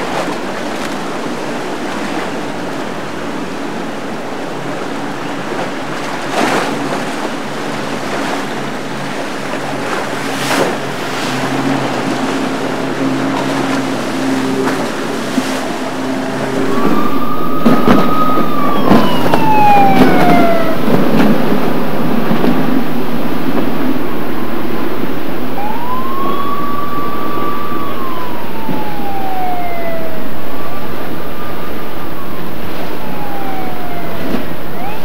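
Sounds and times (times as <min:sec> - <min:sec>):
boat spray rushing: 0:00.0 - 0:35.0
choppy water rushing: 0:00.0 - 0:35.0
outboard engines humming: 0:00.0 - 0:35.0
siren wail: 0:11.4 - 0:35.0.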